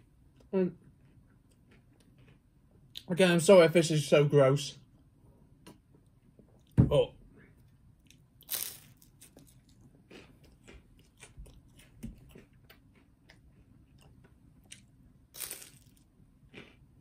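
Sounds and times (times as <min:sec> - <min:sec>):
person chewing crisp cracker: 0:00.8 - 0:03.1, 0:08.0 - 0:17.0.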